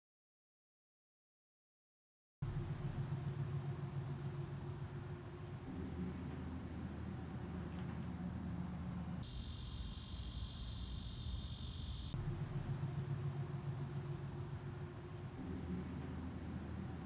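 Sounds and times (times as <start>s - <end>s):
low steady hum: 2.4s - 17.0s
insects trilling in pulses: 8.5s - 17.0s
high insect buzz: 8.6s - 13.0s.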